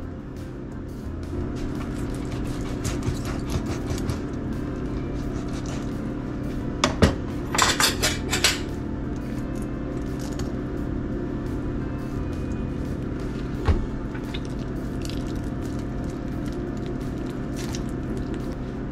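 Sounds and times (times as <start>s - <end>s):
knife cutting fish on board: 2.2s - 4.2s.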